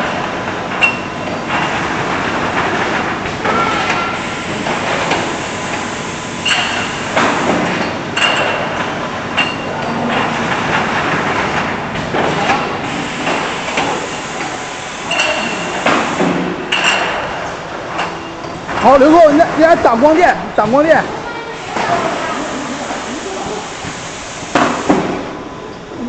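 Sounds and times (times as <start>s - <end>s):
mechanical clatter of packer: 0.0s - 19.8s.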